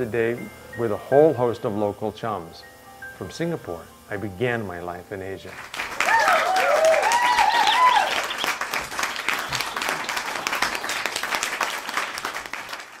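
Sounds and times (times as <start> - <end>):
audience clapping and cheering: 5.5 - 13.0
voices whooping: 6.0 - 8.6.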